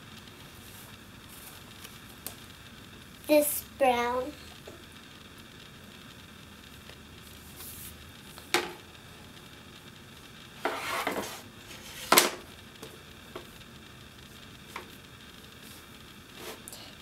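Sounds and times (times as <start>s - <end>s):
brush rubbing in powder: 10.6s - 12.2s, 15.6s - 16.7s.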